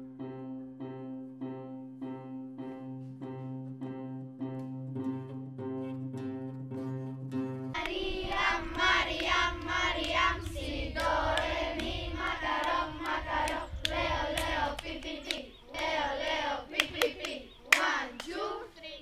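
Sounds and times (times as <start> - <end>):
hand claps and slaps: 7.8 - 15.9, 16.8 - 18.4
children chanting in unison: 7.8 - 19.0.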